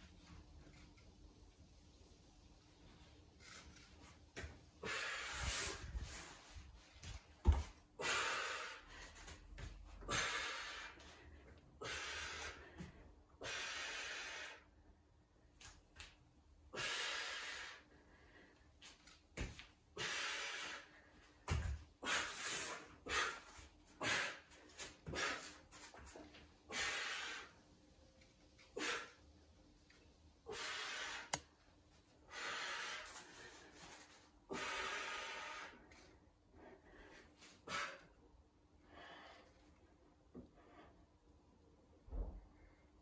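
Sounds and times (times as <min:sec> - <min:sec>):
person breathing hard: 0:08.0 - 0:09.4, 0:10.0 - 0:14.7, 0:32.2 - 0:38.2.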